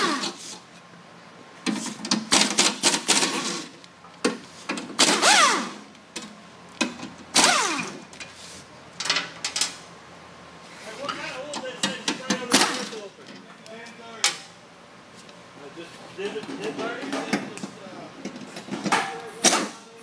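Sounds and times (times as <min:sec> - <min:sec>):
pneumatic air wrench bursts: 0:00.0 - 0:00.6, 0:04.9 - 0:05.8, 0:07.3 - 0:08.0.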